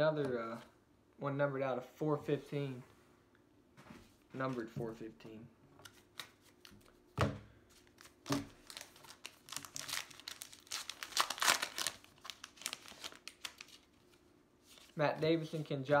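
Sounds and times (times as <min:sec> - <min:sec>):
wrapper tearing and crinkling: 0:08.0 - 0:14.0.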